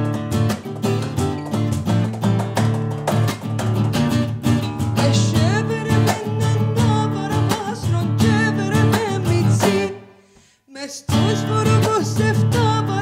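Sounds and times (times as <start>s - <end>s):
acoustic guitar strumming: 0.0s - 10.5s, 11.1s - 13.0s
woman singing: 5.0s - 10.0s, 10.7s - 13.0s.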